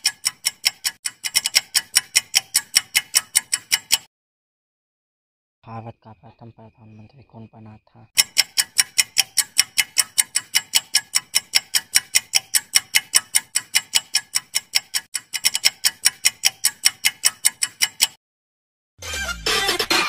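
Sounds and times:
rapid clock ticking: 0:00.0 - 0:04.1, 0:08.2 - 0:18.2.

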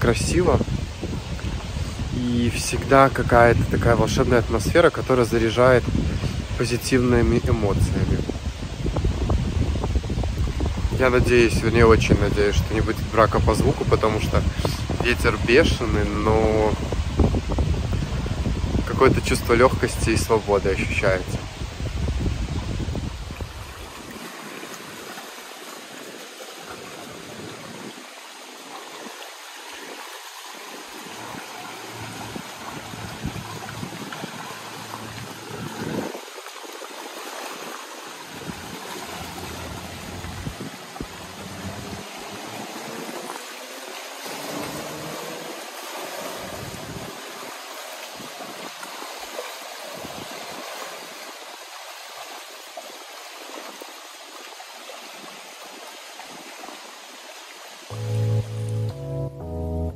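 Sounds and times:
wind gusting against microphone: 0:00.0 - 0:25.0, 0:29.8 - 0:48.8
waves washing onto stones: 0:00.0 - 0:57.9.

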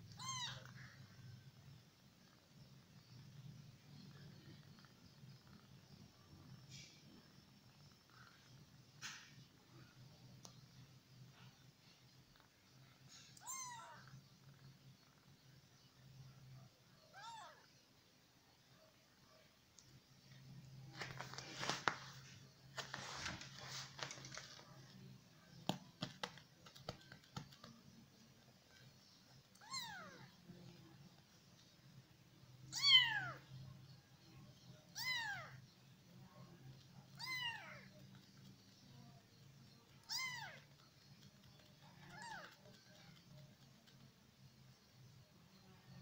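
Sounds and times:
kitten meowing: 0:00.1 - 0:00.7, 0:13.4 - 0:14.0, 0:29.6 - 0:30.2, 0:35.0 - 0:35.5, 0:37.2 - 0:37.8, 0:40.0 - 0:40.6
rustling: 0:20.8 - 0:25.1.

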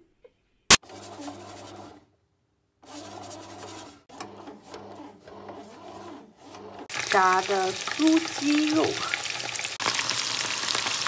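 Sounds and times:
bread machine motor humming: 0:00.8 - 0:02.0, 0:02.8 - 0:11.0
paddle scraping dough in pan: 0:00.8 - 0:02.0, 0:02.8 - 0:09.6.

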